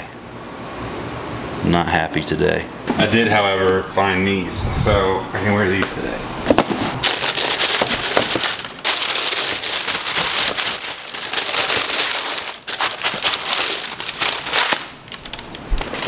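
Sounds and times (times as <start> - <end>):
tissue paper rustling: 7.0 - 16.0.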